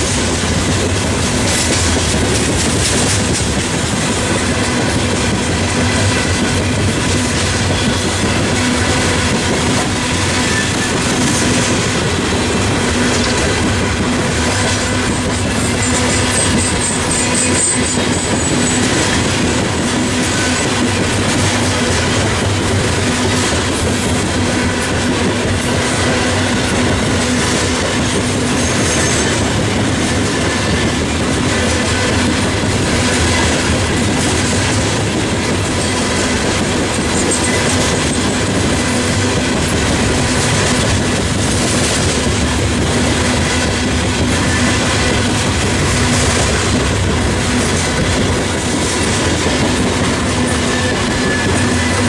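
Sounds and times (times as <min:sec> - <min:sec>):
train wheels rumbling on rails: 0:00.0 - 0:52.0
high wheel squeal: 0:10.1 - 0:11.8, 0:15.6 - 0:19.2, 0:28.5 - 0:29.5, 0:50.4 - 0:52.0.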